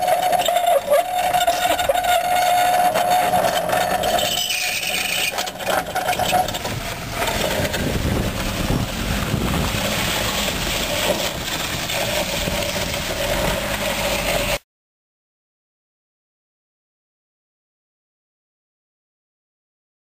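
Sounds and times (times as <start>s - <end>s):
caster wheels rattling on asphalt: 0.0s - 14.6s
car engine running slowly: 3.0s - 14.6s.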